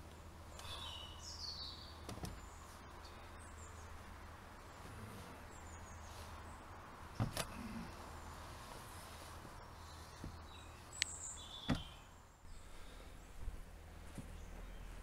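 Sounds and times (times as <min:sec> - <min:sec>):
faint outdoor background: 0:00.0 - 0:15.0
high bird chirps: 0:09.6 - 0:12.6.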